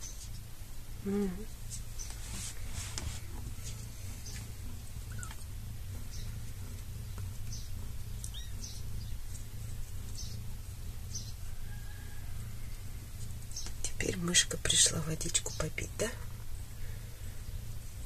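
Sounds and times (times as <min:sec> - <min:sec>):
low hum: 0:00.0 - 0:18.0
kittens ticking and scuffing on floor: 0:01.5 - 0:18.0
kitten chirps: 0:05.1 - 0:05.4.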